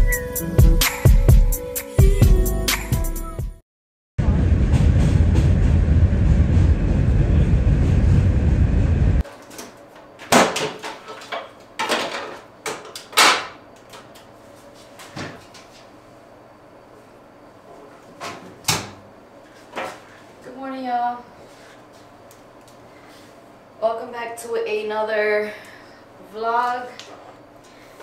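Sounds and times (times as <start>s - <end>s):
train rumbling over a bridge: 4.2s - 9.2s.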